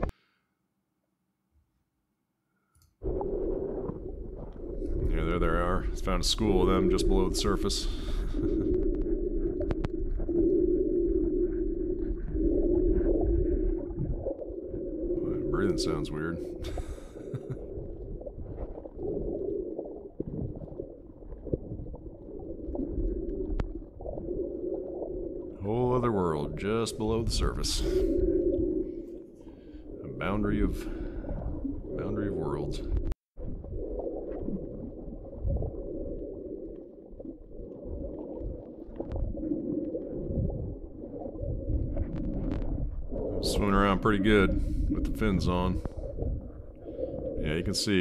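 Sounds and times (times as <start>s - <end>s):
muffled snorkel breathing underwater: 7.7s - 15.6s, 16.3s - 25.5s, 27.6s - 30.0s, 30.7s - 32.0s, 44.5s - 47.4s.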